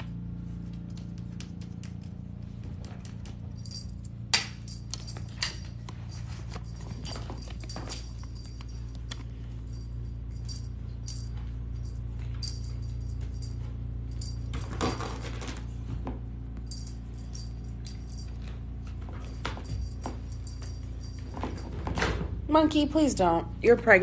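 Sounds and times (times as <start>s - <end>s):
cat toy jingling: 3.5s - 15.2s, 19.2s - 21.7s.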